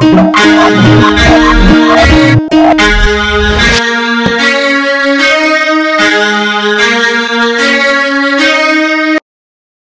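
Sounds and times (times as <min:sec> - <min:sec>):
sustained synth chords: 0:00.0 - 0:03.8.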